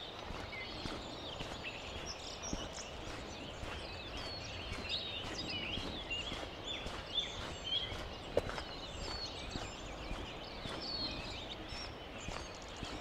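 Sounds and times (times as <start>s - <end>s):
footsteps walking: 0.0s - 13.0s
small birds chirping and warbling: 0.0s - 13.0s.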